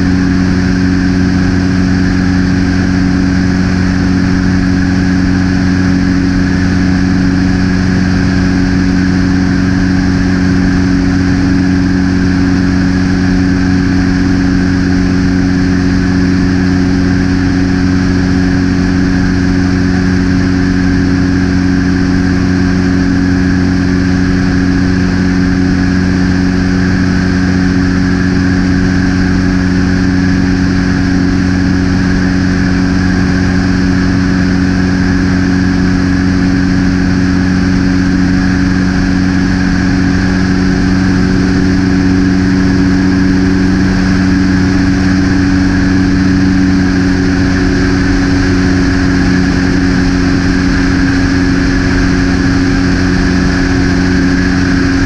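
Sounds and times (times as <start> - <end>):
propeller aircraft cabin drone: 0.0 - 55.0.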